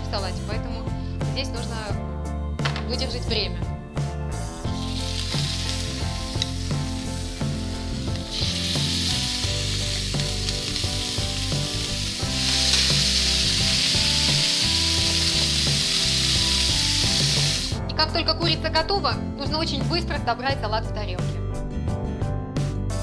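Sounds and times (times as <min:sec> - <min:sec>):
chicken sizzling in hot oil: 0:04.4 - 0:17.8.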